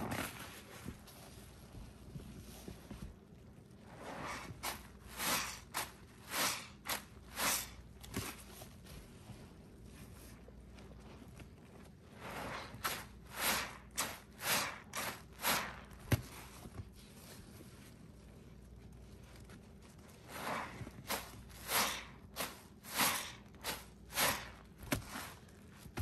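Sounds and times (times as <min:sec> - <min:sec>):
wet sponge squelching: 0:03.8 - 0:08.1, 0:10.0 - 0:17.0, 0:18.2 - 0:26.0.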